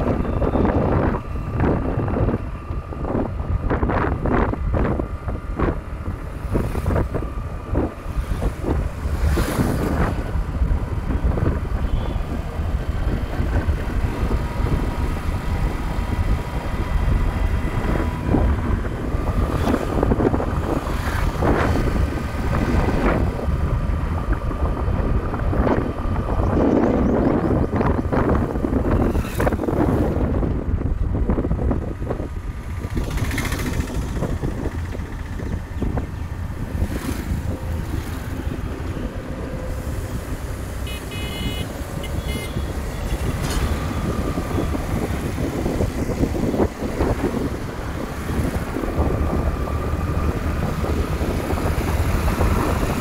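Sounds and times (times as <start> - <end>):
wind buffeting microphone: 0.0 - 53.0
motorcycle engine running: 30.9 - 38.3.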